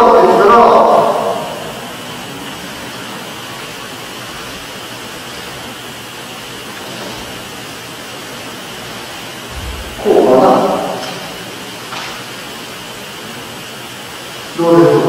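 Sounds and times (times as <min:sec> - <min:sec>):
hall background hiss: 0:00.0 - 0:15.0.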